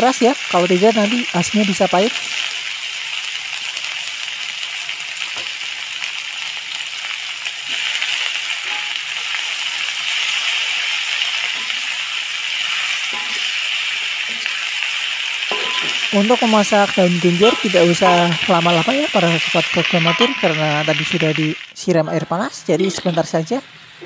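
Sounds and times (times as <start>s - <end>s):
leaves sizzling in a wok: 0.0s - 24.0s
spatula scraping a wok: 10.2s - 14.8s.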